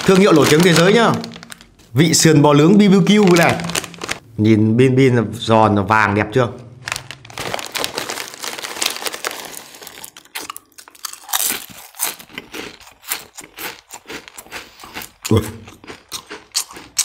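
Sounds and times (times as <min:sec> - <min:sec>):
foil bag crinkling: 0:00.0 - 0:02.2, 0:02.8 - 0:04.2, 0:06.8 - 0:11.7
chips crunching when chewed: 0:07.3 - 0:17.0.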